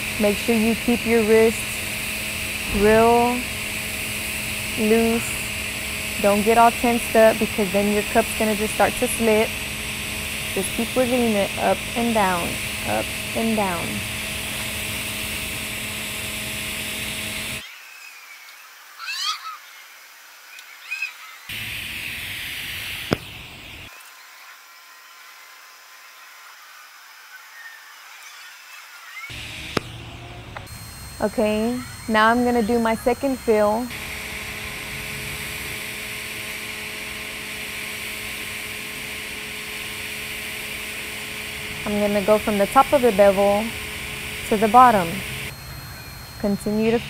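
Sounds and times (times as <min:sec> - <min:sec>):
faint steady hum: 0:00.0 - 0:17.6, 0:29.3 - 0:47.0
welding arc hissing: 0:00.0 - 0:17.6, 0:21.5 - 0:23.9, 0:29.3 - 0:47.0
short rising chirps: 0:45.4 - 0:47.0.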